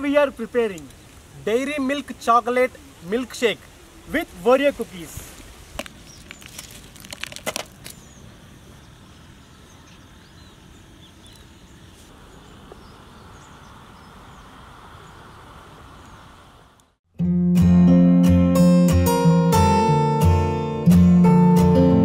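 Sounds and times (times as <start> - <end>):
steady low hiss: 0.0 - 17.0.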